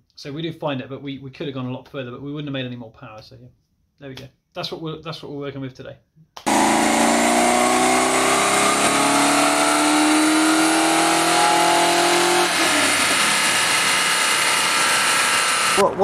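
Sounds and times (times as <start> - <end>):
car engine revving at full throttle: 6.4 - 15.8.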